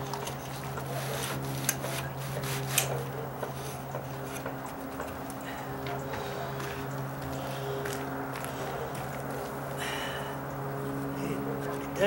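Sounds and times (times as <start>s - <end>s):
matting scraping across deck: 0.0s - 5.3s
steady low hum: 0.0s - 12.0s.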